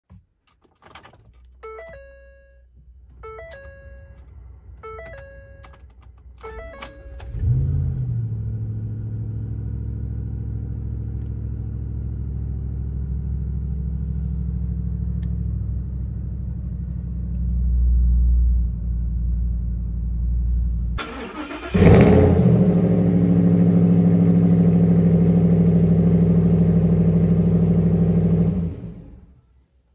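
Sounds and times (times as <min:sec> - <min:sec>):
engine cranking: 0:21.0 - 0:22.1.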